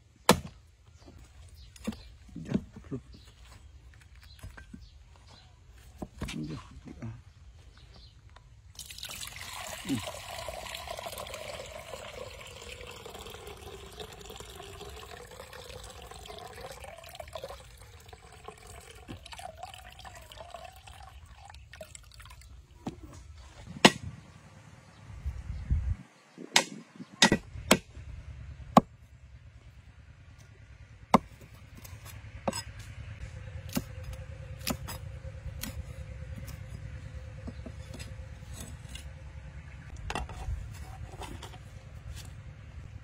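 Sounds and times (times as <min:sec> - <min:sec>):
cleaver striking chopping block: 0:00.3 - 0:00.6, 0:23.8 - 0:24.1, 0:26.5 - 0:27.9
coconut water pouring into bowl: 0:08.8 - 0:22.6.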